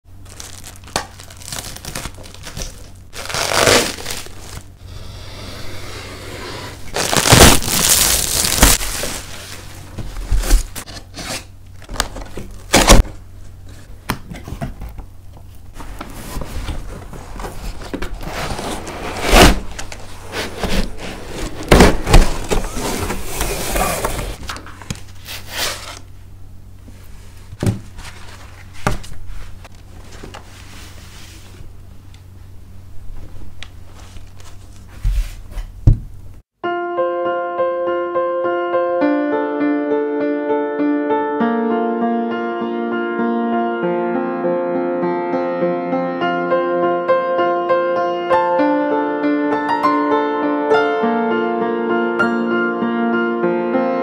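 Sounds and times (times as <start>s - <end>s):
cardboard and foam rustling: 0.2s - 4.7s, 6.7s - 14.8s, 15.7s - 26.1s, 27.0s - 31.7s, 33.2s - 35.7s
plastic shrink wrap crinkling: 0.2s - 4.8s, 6.9s - 10.9s.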